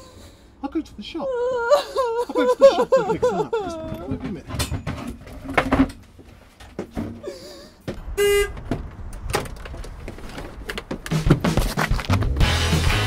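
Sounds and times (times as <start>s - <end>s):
van door opening clatter: 3.7s - 12.4s
background music with bass: 11.0s - 13.0s.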